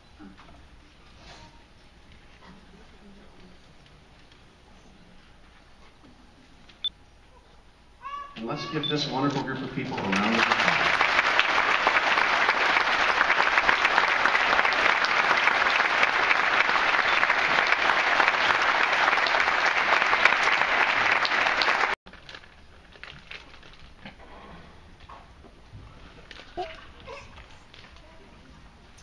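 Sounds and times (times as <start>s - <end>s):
audience clapping: 9.3s - 22.0s.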